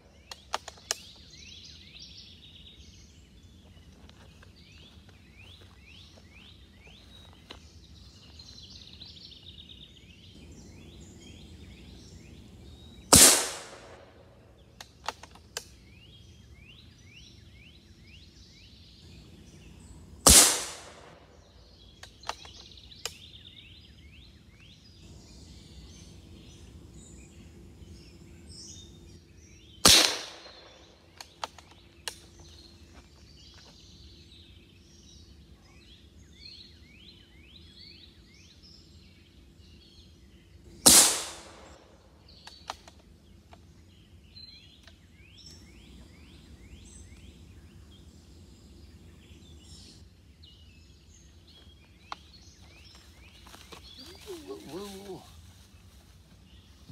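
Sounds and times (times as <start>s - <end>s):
air rifle shots: 13.1s - 14.2s, 20.2s - 21.4s, 29.8s - 31.5s, 40.8s - 42.0s.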